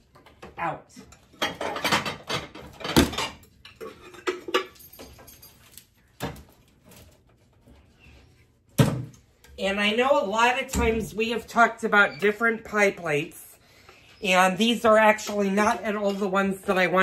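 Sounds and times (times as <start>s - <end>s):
pie plates clinking: 1.1s - 5.4s.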